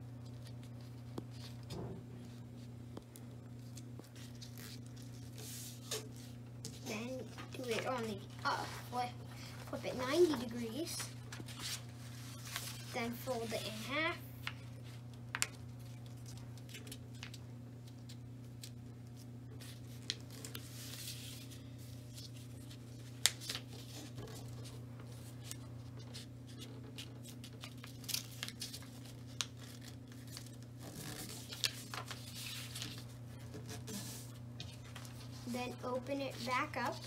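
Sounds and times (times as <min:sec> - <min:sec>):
steady low hum: 0:00.0 - 0:37.0
paper folding and creasing: 0:03.6 - 0:14.0, 0:16.0 - 0:37.0.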